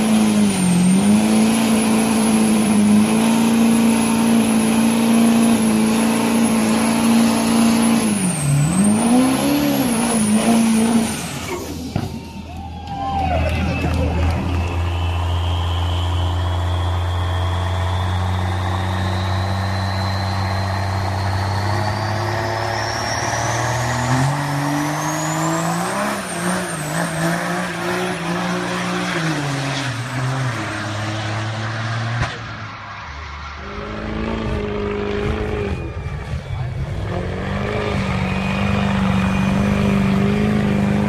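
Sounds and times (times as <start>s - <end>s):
pickup truck engine accelerating: 0.0s - 41.0s
turbo whistle: 13.8s - 26.1s, 35.2s - 40.5s.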